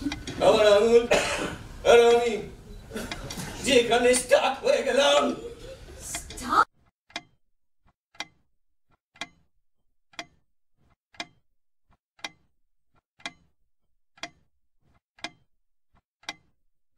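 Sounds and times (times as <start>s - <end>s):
clock ticking: 0.0s - 5.4s, 6.0s - 9.5s, 10.1s - 16.6s.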